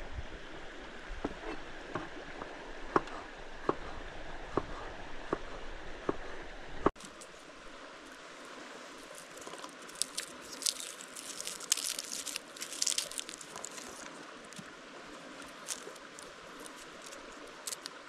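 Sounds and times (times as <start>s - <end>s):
papery garlic skin crackles: 9.0s - 14.6s, 15.3s - 18.0s.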